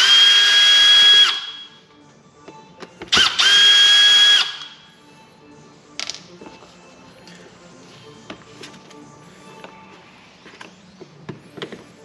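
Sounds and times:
cordless drill motor whine: 0:00.0 - 0:01.5, 0:03.2 - 0:04.7.

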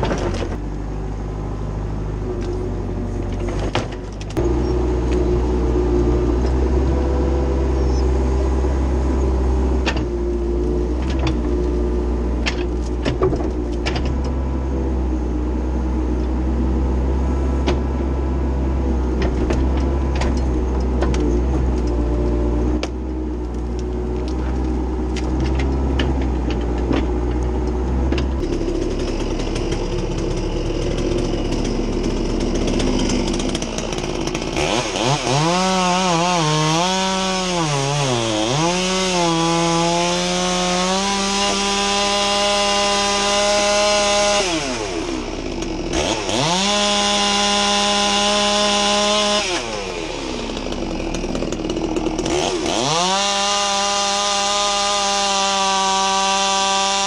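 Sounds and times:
low engine hum: 0:00.0 - 0:37.5
chainsaw revving and cutting: 0:04.3 - 0:57.0.

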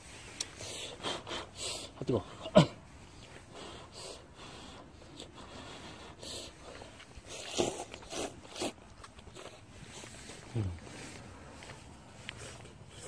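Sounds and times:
person slurping noodles: 0:07.2 - 0:08.8.

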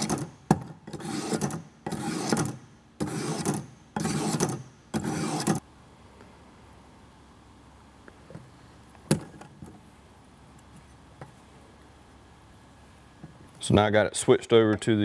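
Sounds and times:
knife blade scraping on sharpener: 0:00.9 - 0:05.6.

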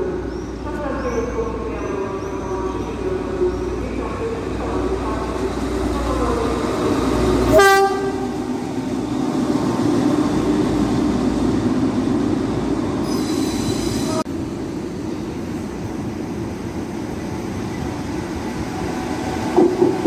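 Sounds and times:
high squeal: 0:13.0 - 0:14.2.

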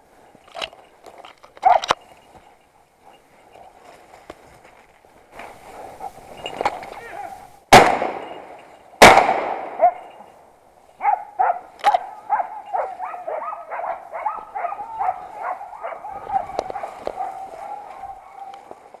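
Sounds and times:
dog barking: 0:01.6 - 0:01.9, 0:09.8 - 0:10.2, 0:11.0 - 0:18.8
gunshots: 0:07.7 - 0:10.1.

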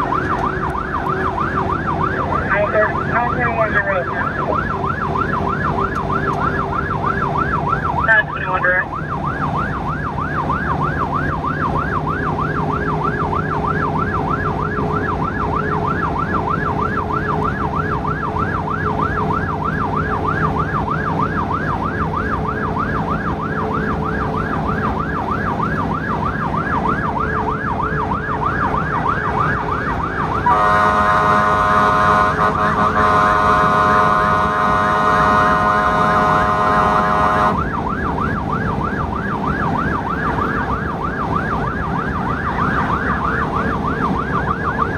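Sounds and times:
emergency siren yelping: 0:00.0 - 0:44.9
vehicle engine humming: 0:00.0 - 0:44.9
vehicle horn: 0:30.4 - 0:37.6.

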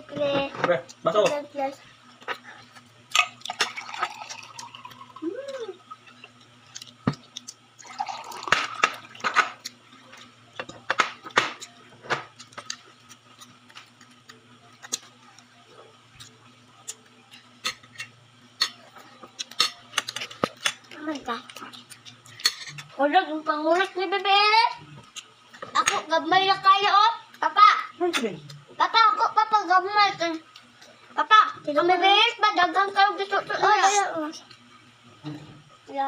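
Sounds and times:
child humming: 0:05.2 - 0:05.8.

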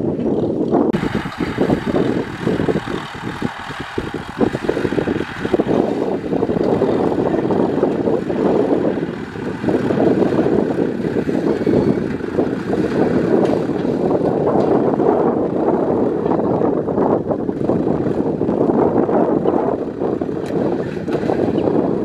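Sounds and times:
tractor diesel engine under load: 0:00.6 - 0:22.0.

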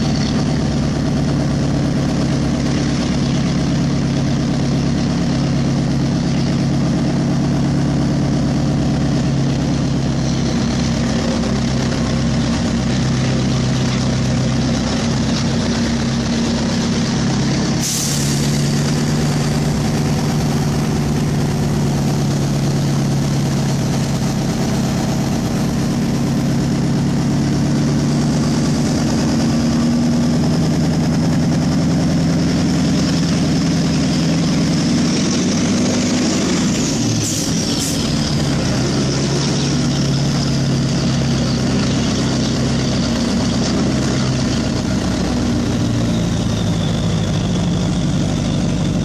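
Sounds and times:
diesel engine running: 0:00.0 - 0:49.0.

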